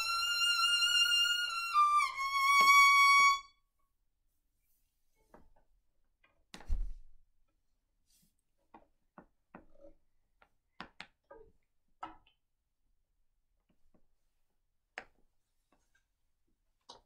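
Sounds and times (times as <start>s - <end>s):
thump: 6.6s - 7.1s.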